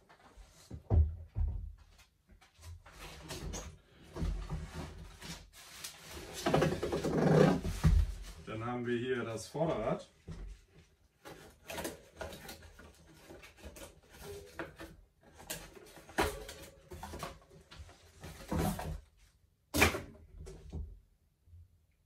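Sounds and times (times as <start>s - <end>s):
packaging rustling and scraping: 2.8s - 8.4s, 11.2s - 19.0s.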